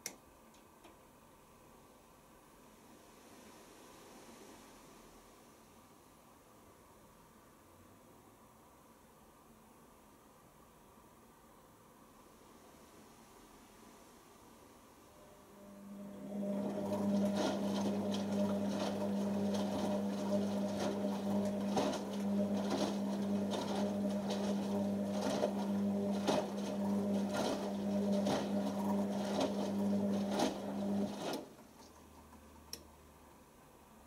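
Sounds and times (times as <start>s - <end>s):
washing machine motor hum: 15.2s - 34.0s.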